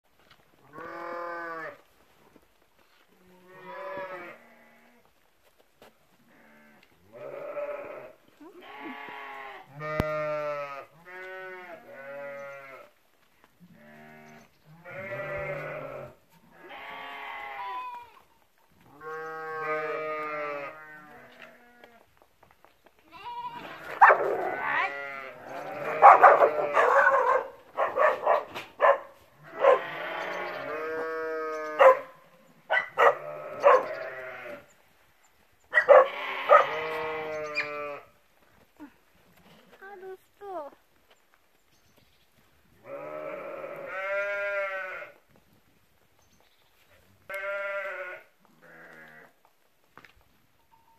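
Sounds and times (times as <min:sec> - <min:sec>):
sheep bleating: 0:00.6 - 0:01.8, 0:03.2 - 0:05.0, 0:06.3 - 0:12.9, 0:13.7 - 0:18.2, 0:18.9 - 0:22.0, 0:23.1 - 0:27.4, 0:29.4 - 0:32.1, 0:32.8 - 0:34.7, 0:35.8 - 0:38.2, 0:42.8 - 0:45.2, 0:47.3 - 0:49.4
dog barking: 0:24.0 - 0:24.6, 0:25.9 - 0:29.9, 0:31.8 - 0:34.0, 0:35.7 - 0:36.8.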